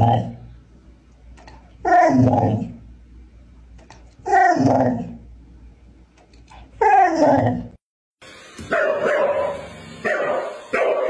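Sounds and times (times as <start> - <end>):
dog barking: 8.7 - 11.0.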